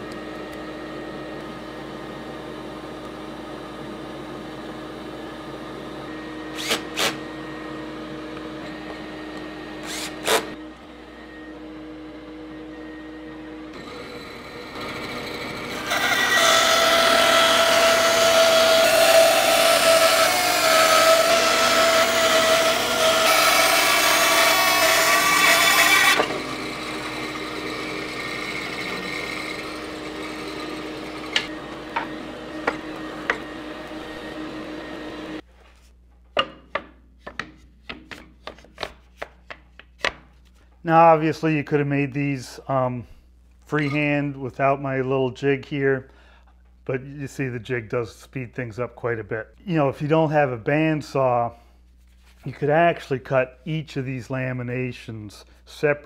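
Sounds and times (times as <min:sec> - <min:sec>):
bandsaw cutting wood: 0:06.1 - 0:35.4.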